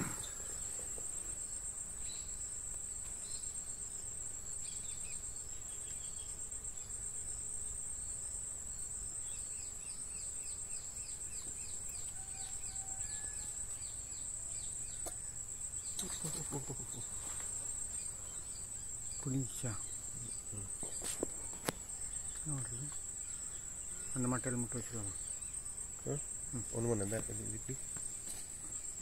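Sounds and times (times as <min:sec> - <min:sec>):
insect trill: 0:00.0 - 0:29.0.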